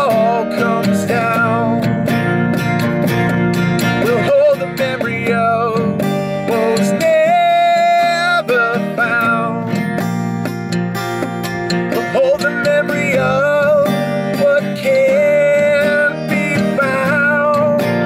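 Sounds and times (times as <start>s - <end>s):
person singing: 0.0s - 1.9s, 4.0s - 9.8s, 11.8s - 18.0s
acoustic guitar strumming: 0.0s - 18.0s.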